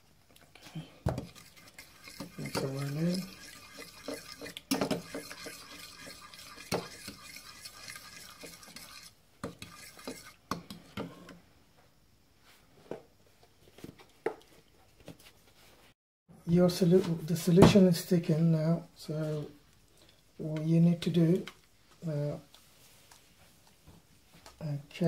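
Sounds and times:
fork scraping ceramic bowl: 1.2s - 10.4s.

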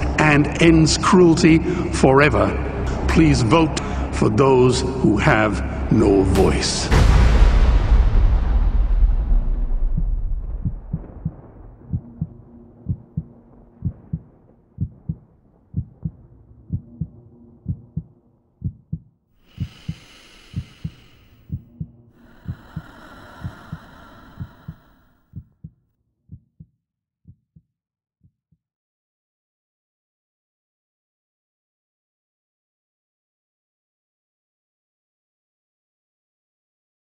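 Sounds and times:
heartbeat thumps: 9.1s - 25.7s.

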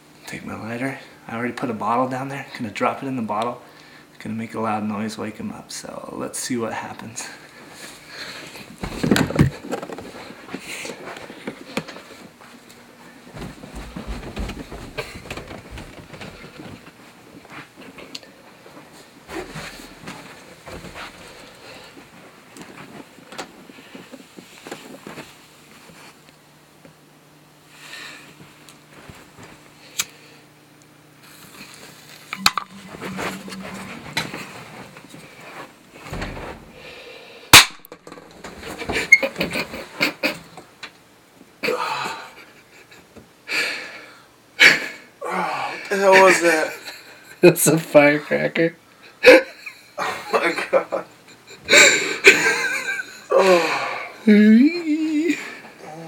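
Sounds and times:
bedding rustling: 8.8s - 17.8s, 18.5s - 26.2s.

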